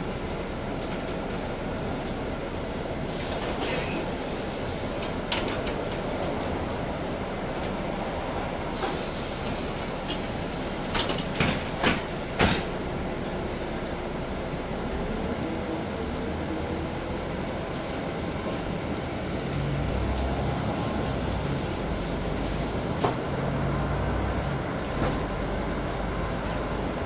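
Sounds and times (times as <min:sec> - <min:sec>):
bus ride noise: 0:00.0 - 0:27.0
hiss: 0:03.1 - 0:05.3, 0:08.7 - 0:13.4.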